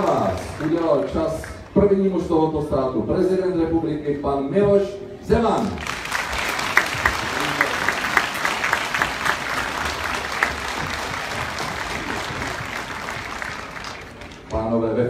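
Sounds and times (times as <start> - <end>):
audience applauding: 0.0 - 1.8, 5.6 - 14.7.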